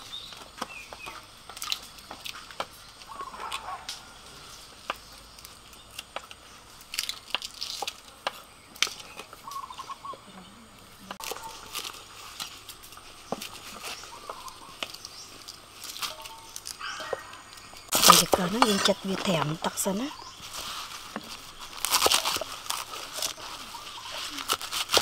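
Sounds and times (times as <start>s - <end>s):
bird calling: 3.0s - 5.2s, 8.5s - 11.7s, 13.2s - 20.5s.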